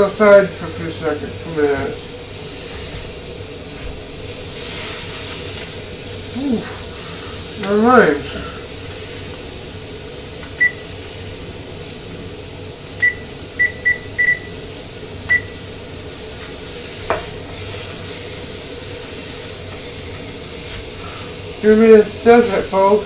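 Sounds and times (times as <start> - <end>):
meat searing in hot pan: 0.0 - 23.0
short electronic beeps: 13.0 - 14.5, 15.3 - 15.6.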